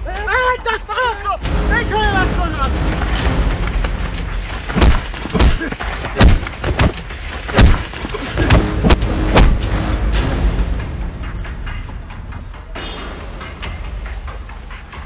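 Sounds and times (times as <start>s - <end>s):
heavy thuds of blows: 4.7s - 9.7s.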